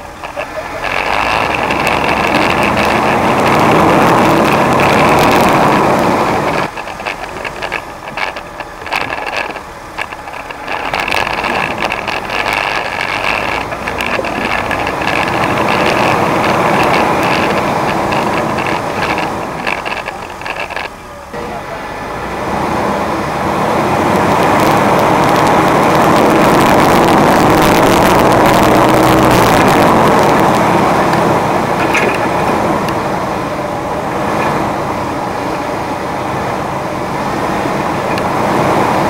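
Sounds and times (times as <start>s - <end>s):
loud dense rush: 0.0s - 9.6s, 10.3s - 39.0s
off-road vehicle engine running: 0.0s - 39.0s
knocks and rattles from rocks: 0.2s - 21.0s, 31.2s - 32.6s.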